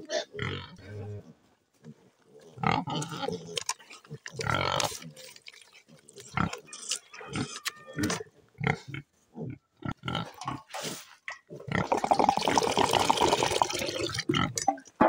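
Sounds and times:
wet mash squelching: 3.4s - 8.0s
water pouring into bucket: 11.8s - 14.3s.

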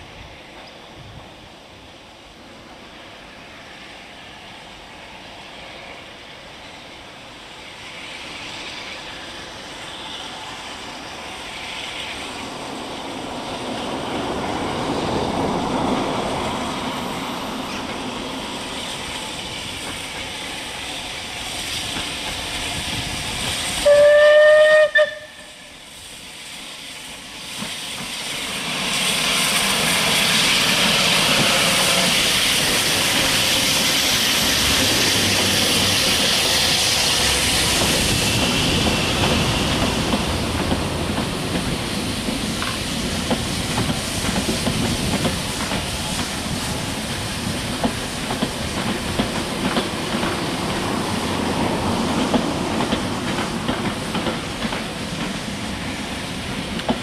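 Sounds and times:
coaches on rails: 0.0s - 57.0s
rush of steam: 0.0s - 57.0s
steam locomotive passing: 0.0s - 57.0s
steam train whistle: 23.7s - 25.8s, 31.0s - 32.4s.

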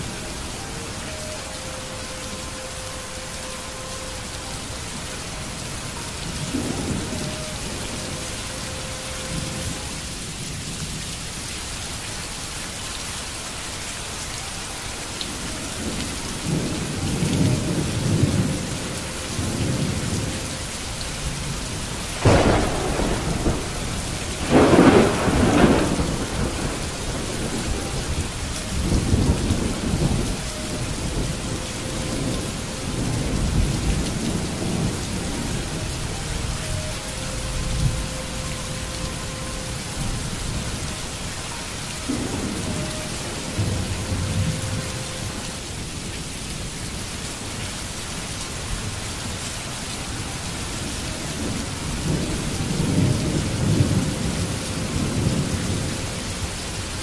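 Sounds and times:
heavy rain hiss: 0.0s - 57.0s
thunder rumbling and cracking: 21.2s - 36.2s.

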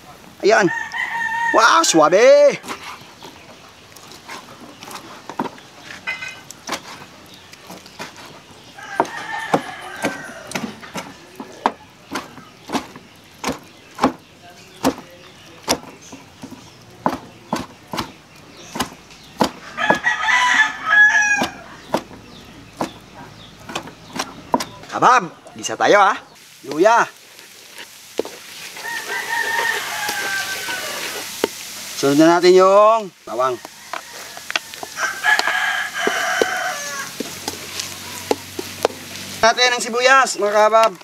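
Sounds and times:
rooster crowing: 0.4s - 2.2s, 8.7s - 12.0s, 19.6s - 21.8s, 28.7s - 31.3s, 33.3s - 38.4s.

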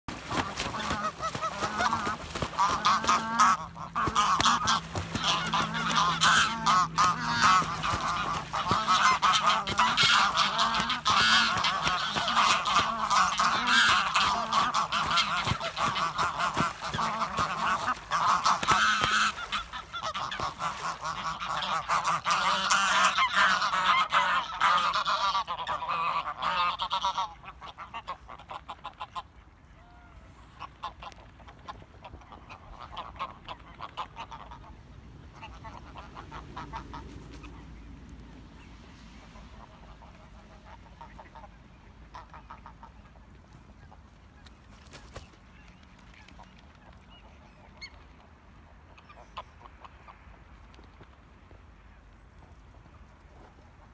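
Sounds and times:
water splashing: 0.1s - 23.5s
geese honking: 0.1s - 29.4s.

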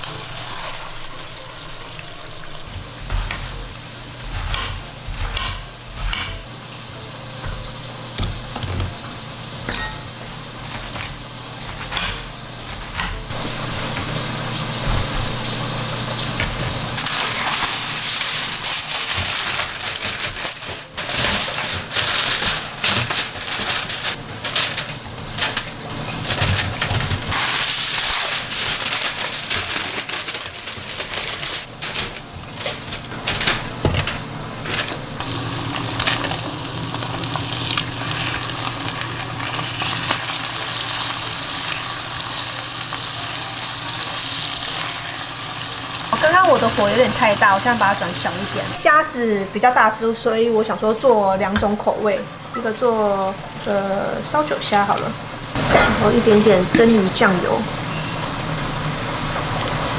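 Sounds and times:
rustling of leafy greens: 17.0s - 36.3s
aluminium foil crinkling: 17.0s - 49.0s
tofu sizzling in a pan: 35.2s - 49.2s.

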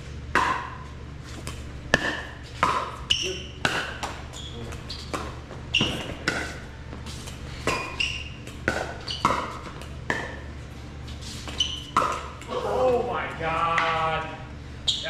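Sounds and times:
steady low hum: 0.0s - 15.0s
ball bouncing on court: 0.3s - 10.5s, 11.4s - 12.5s, 13.6s - 14.1s
paddles hitting plastic ball: 1.4s - 10.4s, 11.5s - 12.6s.

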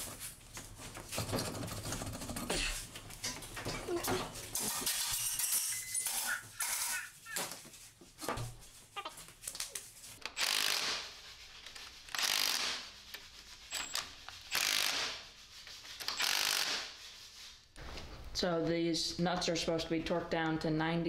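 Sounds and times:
cordless power tool spinning: 10.2s - 11.1s, 12.1s - 12.8s, 13.7s - 15.2s, 16.0s - 16.8s.

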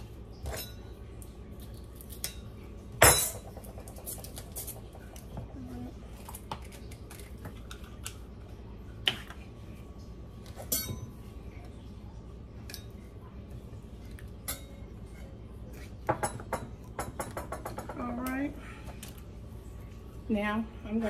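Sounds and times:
utensils and dishes clinking: 0.3s - 8.1s, 10.5s - 11.2s, 12.6s - 13.1s, 14.0s - 19.0s.

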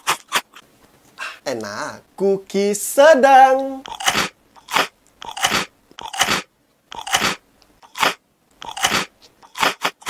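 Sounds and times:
crunchy cookie being chewed: 3.9s - 10.0s.

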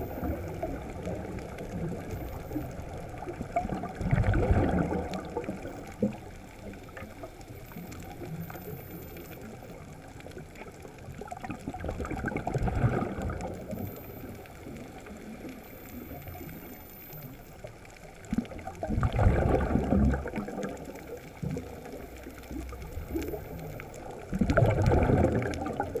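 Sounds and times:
underwater ambience: 0.0s - 26.0s
diver exhaling bubbles: 3.4s - 6.2s, 11.6s - 13.5s, 18.8s - 20.8s, 24.3s - 26.0s.

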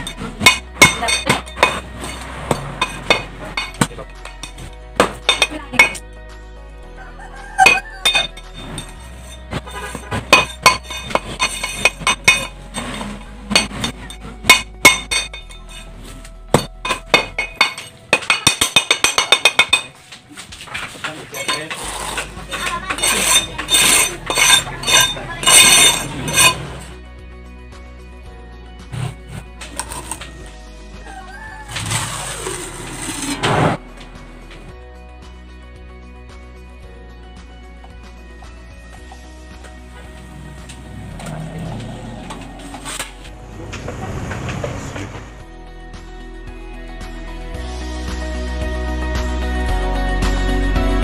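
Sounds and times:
trowel scraping metal mould: 0.0s - 6.0s, 7.6s - 20.0s, 20.6s - 27.0s, 28.9s - 30.5s, 31.6s - 33.8s, 39.9s - 43.3s.

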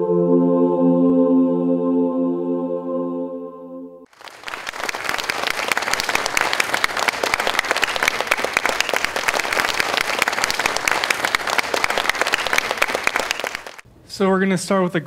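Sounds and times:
audience applauding: 4.1s - 13.8s.

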